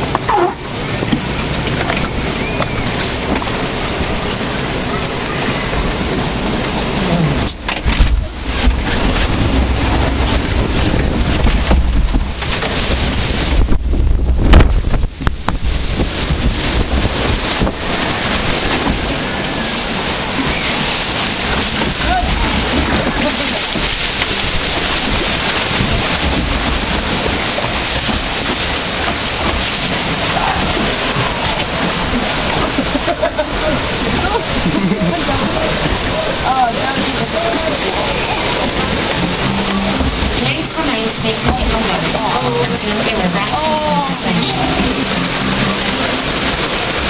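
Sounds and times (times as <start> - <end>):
rushing water: 0.0 - 47.0
wind buffeting microphone: 0.0 - 47.0.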